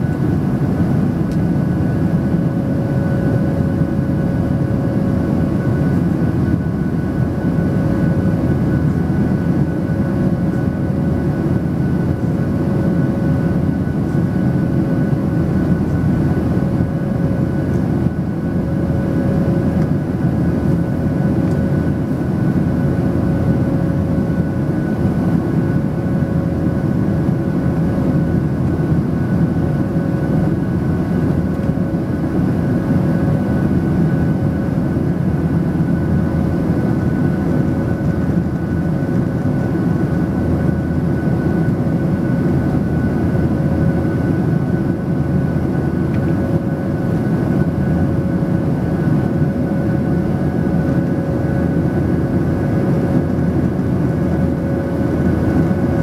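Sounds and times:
jet engine drone: 0.0 - 56.0.

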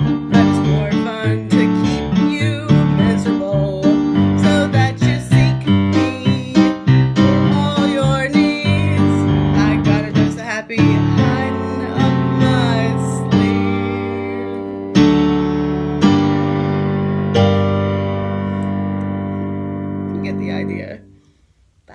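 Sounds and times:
keyboard piano chords: 0.0 - 21.2
woman singing: 0.1 - 14.9.

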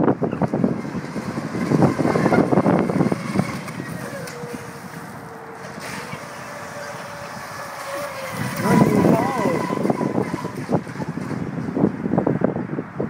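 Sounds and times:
electric boat motor whining: 0.0 - 12.7
wind buffeting microphone: 0.0 - 13.0.

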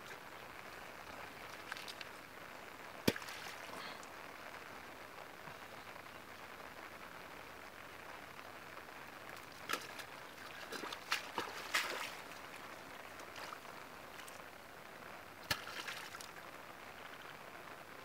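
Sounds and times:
hands splashing in muddy water: 9.6 - 12.4.

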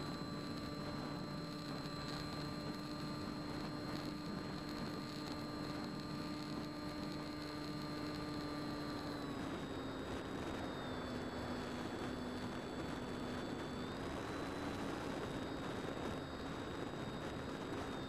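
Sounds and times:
electric motor and propeller humming: 0.0 - 18.0.

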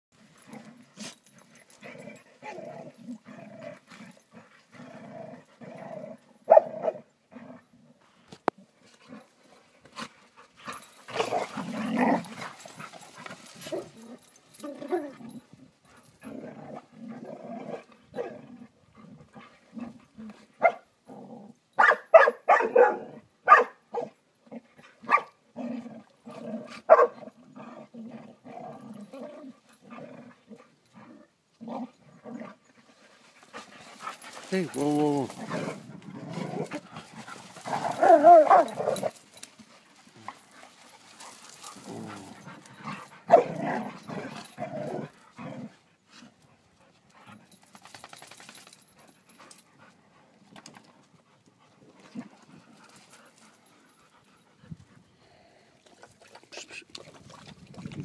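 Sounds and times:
dogs growling: 0.2 - 21.6, 24.4 - 46.4, 47.1 - 55.0
dogs barking sharply: 6.5 - 7.0, 21.8 - 24.1, 25.1 - 25.3, 26.9 - 27.2
dogs scuffling: 33.0 - 44.6.

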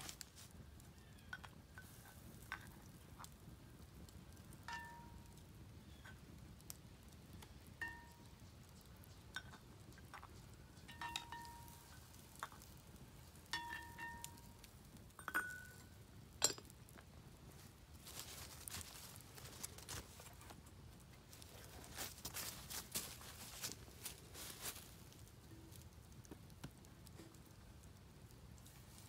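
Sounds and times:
cast iron cookware clinking: 4.6 - 5.4, 7.7 - 12.7, 13.4 - 16.9
soft rustling of handling: 17.5 - 27.4.

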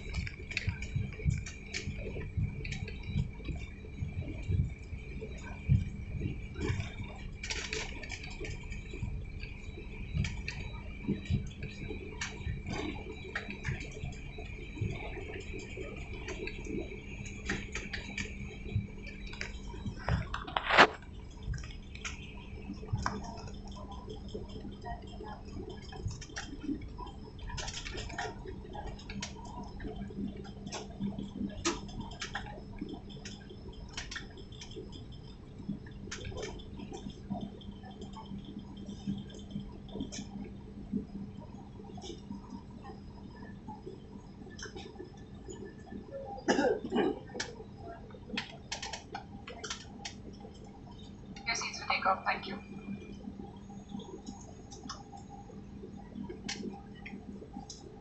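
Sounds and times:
small clicks and rattles: 0.0 - 46.0, 46.9 - 51.5.

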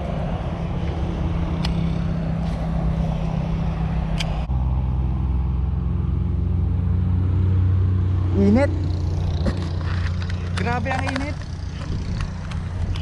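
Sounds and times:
motor engine humming: 0.0 - 13.0
sharp ticks: 9.0 - 13.0.

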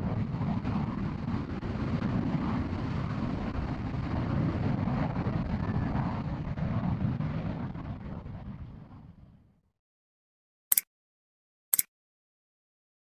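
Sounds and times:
jet engine rumbling: 0.0 - 9.3.

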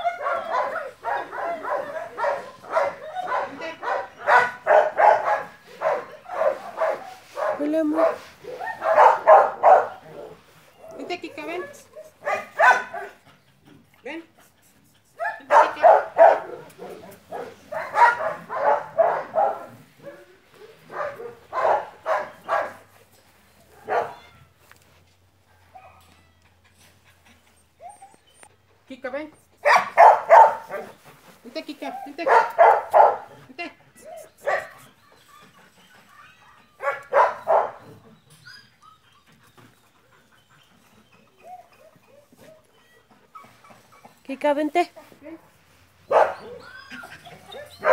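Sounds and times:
dog barking: 0.0 - 10.4, 12.2 - 13.2, 15.2 - 22.8, 23.8 - 24.2, 29.6 - 30.9, 32.2 - 33.4, 34.4 - 34.8, 36.8 - 37.9, 46.1 - 46.6.

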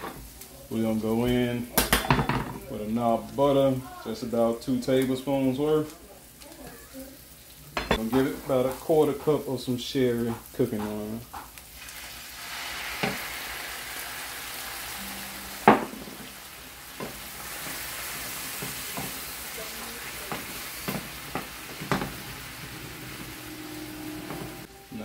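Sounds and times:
wine sizzling in a hot pan: 0.0 - 25.0
wooden spoon knocking a pan: 15.5 - 17.9, 18.5 - 19.2, 20.2 - 22.7.

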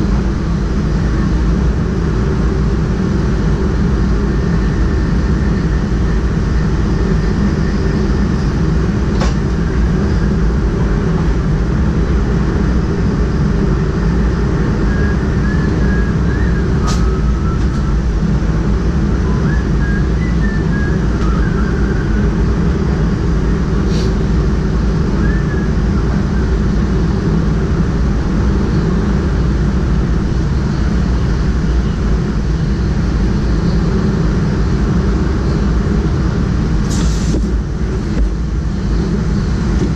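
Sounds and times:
train low rumble: 0.0 - 39.9
faint wavering squeals: 14.7 - 18.3.

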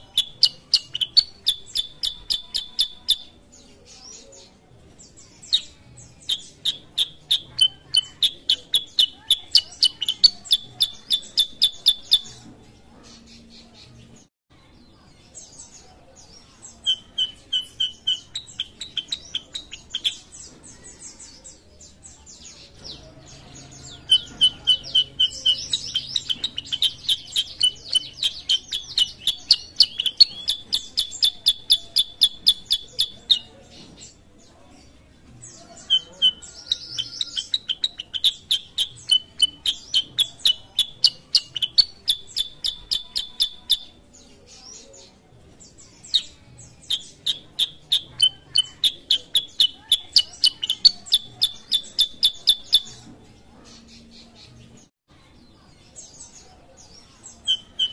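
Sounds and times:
songbird chirping: 0.0 - 57.9.

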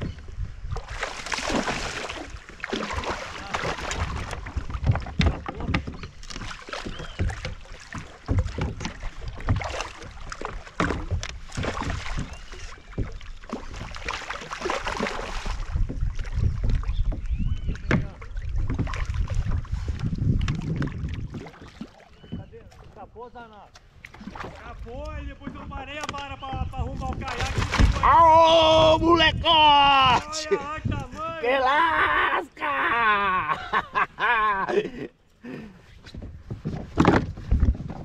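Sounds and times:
wind gusting on microphone: 15.5 - 21.6, 24.5 - 32.2
knocks on kayak: 27.2 - 28.1.

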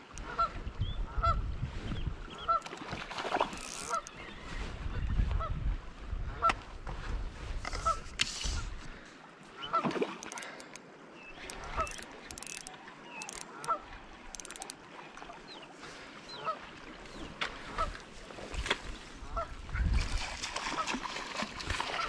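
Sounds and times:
waterfowl honking: 2.4 - 2.8, 3.7 - 4.1, 13.2 - 14.6
sharp clicks: 10.2 - 10.8, 11.4 - 13.7, 14.3 - 14.8.

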